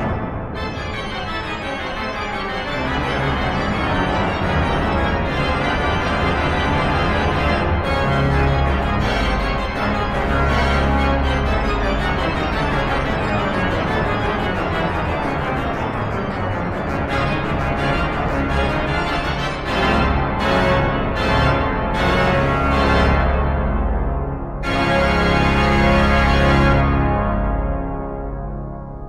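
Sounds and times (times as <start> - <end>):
organ pedal bass: 0.0 - 29.0
pipe organ chords: 0.0 - 29.0.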